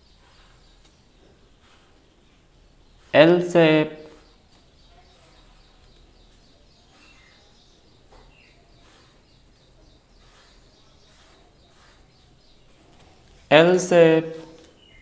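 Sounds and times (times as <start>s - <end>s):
faint bird chirps: 0.0s - 3.2s, 4.0s - 13.4s, 14.3s - 15.0s
pen scratching on paper: 0.2s - 4.4s, 5.0s - 7.4s, 8.1s - 13.2s.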